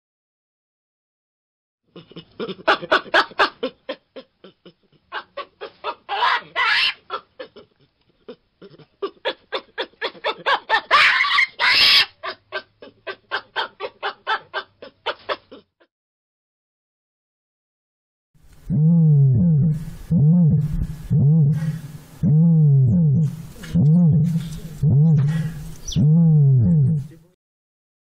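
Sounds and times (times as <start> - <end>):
baboon harsh calls: 6.1 - 7.2, 10.7 - 12.4, 23.3 - 26.0.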